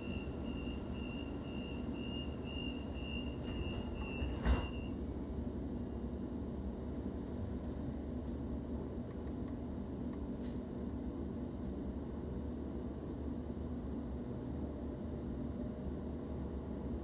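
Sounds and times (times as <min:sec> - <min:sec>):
high warning tone: 0:00.0 - 0:04.9
train carriage humming: 0:00.0 - 0:17.0.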